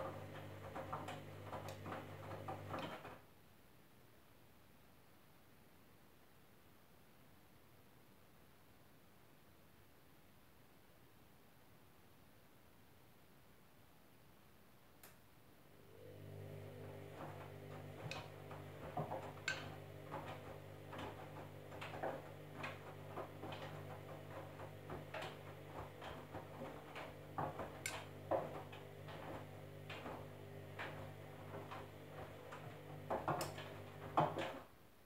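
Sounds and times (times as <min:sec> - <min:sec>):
washing machine motor hum: 0:00.0 - 0:03.2, 0:15.7 - 0:34.7.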